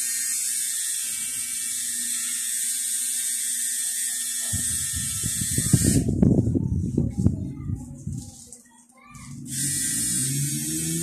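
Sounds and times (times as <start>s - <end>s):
tattoo machine whirring: 0.0s - 6.4s, 9.3s - 11.0s.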